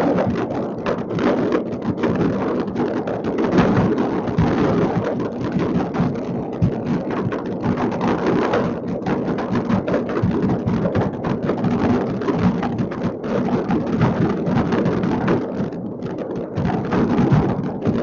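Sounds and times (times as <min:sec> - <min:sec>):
distant fireworks bangs and crackles: 0:00.0 - 0:18.0.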